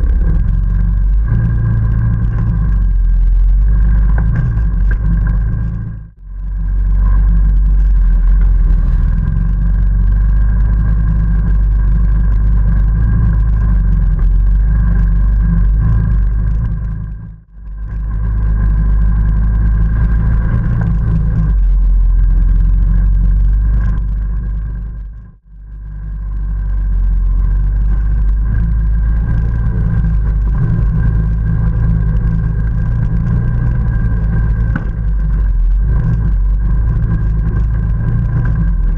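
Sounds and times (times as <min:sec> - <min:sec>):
atv engine rumbling and whining: 0:00.0 - 0:38.9.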